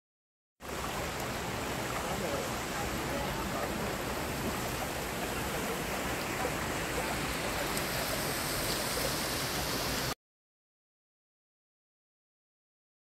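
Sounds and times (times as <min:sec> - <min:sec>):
waterfall rushing over rocks: 0:00.6 - 0:10.2.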